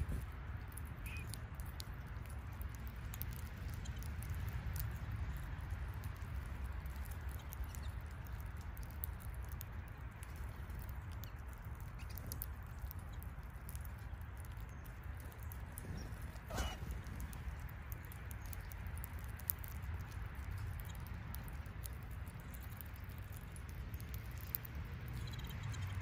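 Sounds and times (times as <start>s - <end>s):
birds cracking seeds: 0.0s - 26.0s.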